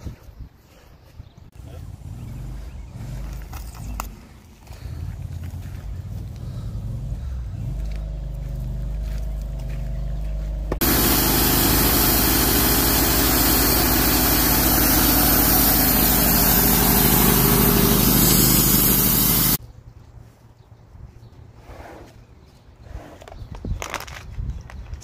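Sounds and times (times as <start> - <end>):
sawmill engine running: 6.4 - 19.6.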